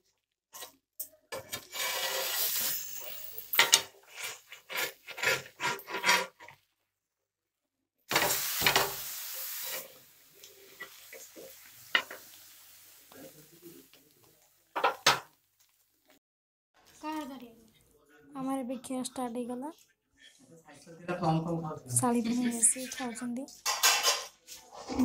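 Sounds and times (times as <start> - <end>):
metal spatula scraping griddle: 1.4 - 6.6, 8.1 - 9.9, 23.7 - 25.0
pan hissing: 1.7 - 5.0, 8.1 - 13.6.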